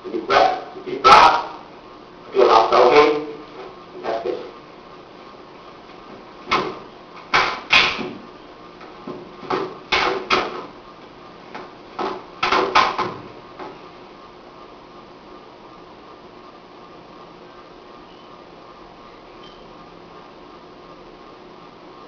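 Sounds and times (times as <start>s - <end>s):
slaps and thuds of strikes: 6.5s - 8.2s, 9.5s - 10.7s, 12.0s - 13.2s.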